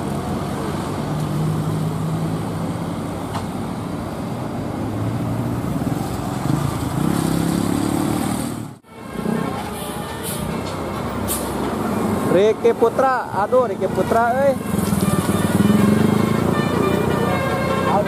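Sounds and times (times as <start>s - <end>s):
vehicle engines climbing a grade: 5.1s - 18.0s
engine accelerating: 14.6s - 17.2s.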